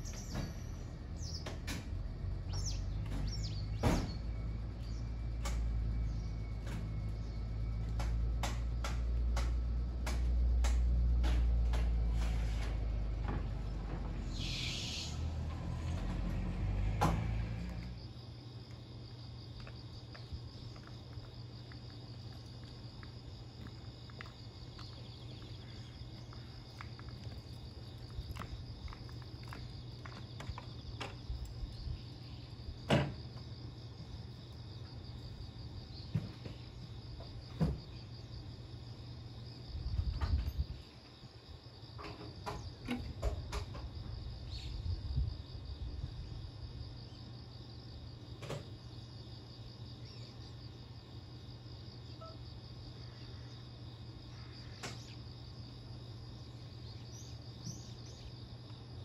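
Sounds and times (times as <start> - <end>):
crickets chirping: 0.0 - 59.0
electric train hum: 4.3 - 32.8.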